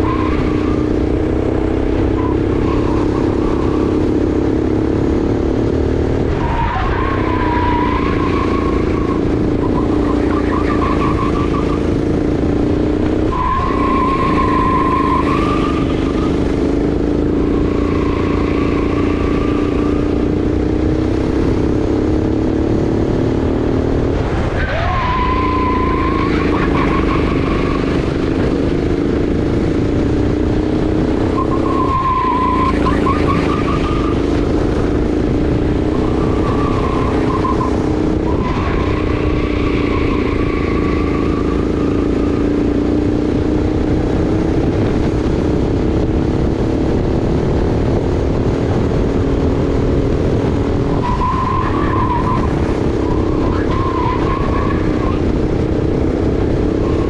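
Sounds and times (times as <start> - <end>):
tyre squeal: 0.0 - 1.0, 2.0 - 4.2, 6.3 - 12.2, 13.1 - 16.6, 17.2 - 20.3, 24.6 - 28.6, 31.2 - 34.6, 35.8 - 42.6, 50.8 - 55.4
kart engine running hard: 0.0 - 57.0.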